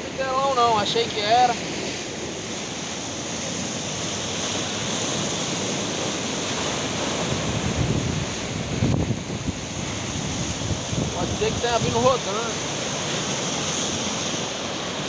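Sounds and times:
waves breaking on rocks: 0.0s - 15.0s
wind on microphone: 3.3s - 15.0s.

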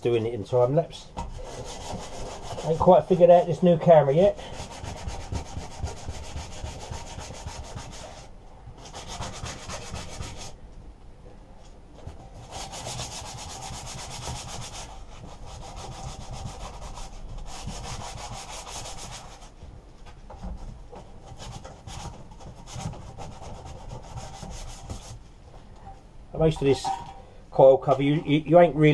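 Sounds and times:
sandpaper scratching on metal: 1.4s - 3.4s, 4.5s - 10.5s, 12.4s - 19.4s.

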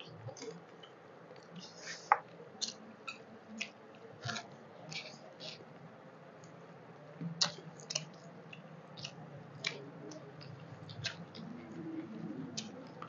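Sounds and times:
low steady hum: 0.0s - 13.0s
food squished between fingers: 7.4s - 11.5s
mouths chewing wetly: 7.4s - 13.0s.

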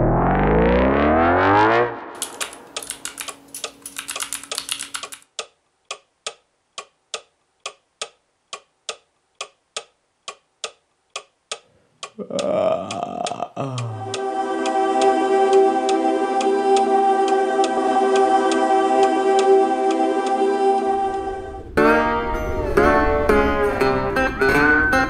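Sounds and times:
rising synth sweep: 0.0s - 2.8s
laptop keyboard typing: 2.2s - 11.6s.

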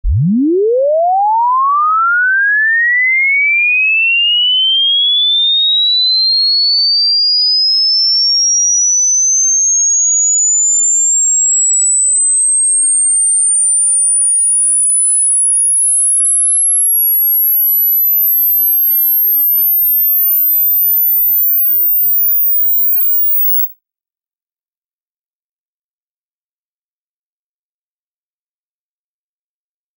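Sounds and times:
rising sine-wave test tone: 0.0s - 23.7s.

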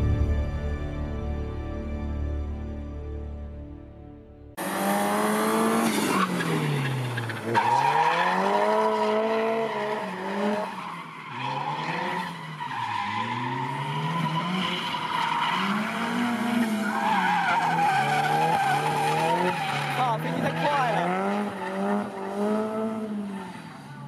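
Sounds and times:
car engine revving: 4.6s - 24.0s.

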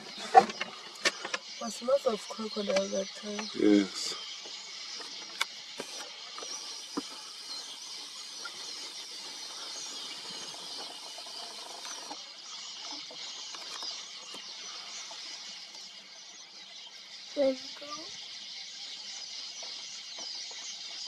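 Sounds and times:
small birds twittering and chirping: 0.0s - 21.0s.

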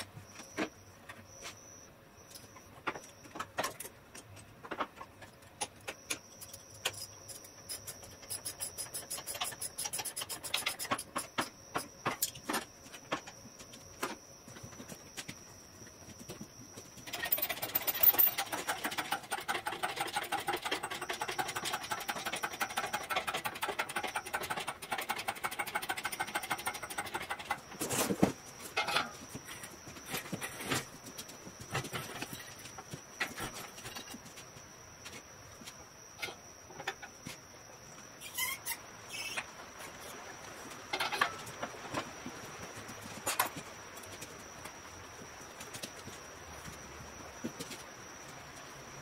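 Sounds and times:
metallic rattling and clicking: 17.0s - 27.7s
metal clanks and knocks: 20.5s - 29.3s.

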